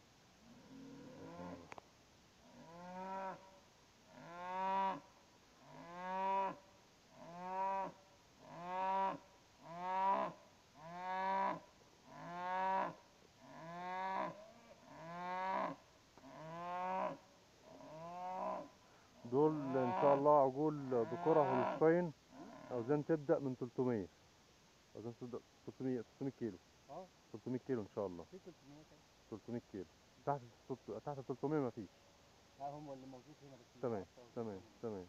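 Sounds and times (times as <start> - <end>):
cattle mooing: 19.4 - 21.8.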